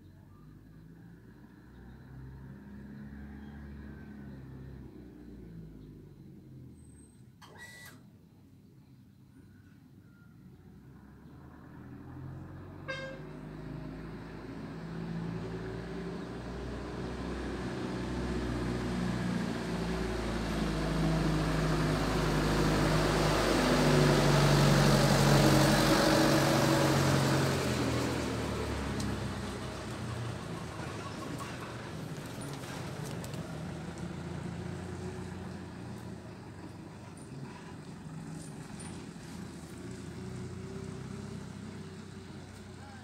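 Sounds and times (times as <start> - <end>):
bus engine running: 11.7 - 43.0
horn toot: 12.8 - 13.5.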